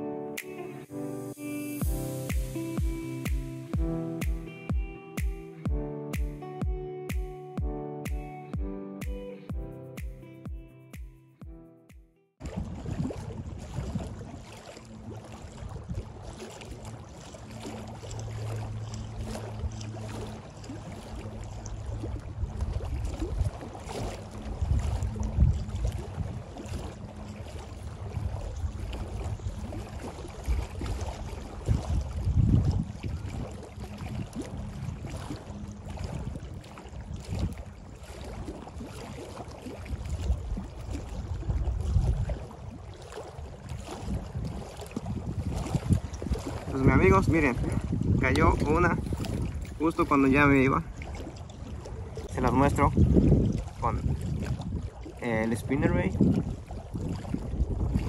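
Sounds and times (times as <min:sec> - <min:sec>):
wind buffeting microphone: 0:12.4 - 0:58.0.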